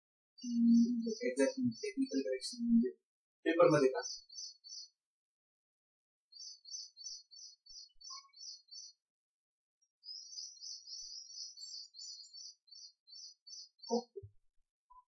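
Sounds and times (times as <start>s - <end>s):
small bird chirping rapidly: 3.8s - 5.0s, 6.3s - 9.1s, 9.9s - 14.2s.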